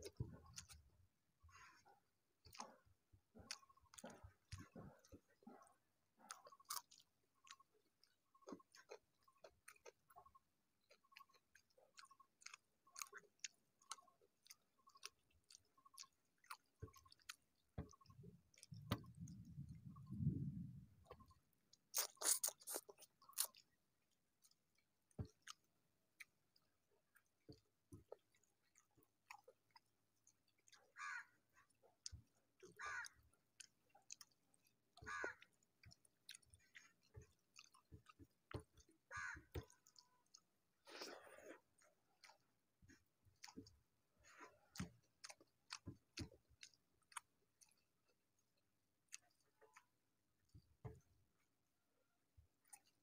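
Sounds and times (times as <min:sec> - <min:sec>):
man chewing food: 0:00.0 - 0:53.0
wet mouth clicks: 0:01.8 - 0:20.2, 0:21.0 - 0:23.7, 0:33.0 - 0:47.8
eating by hand from steel plate: 0:21.7 - 0:23.8.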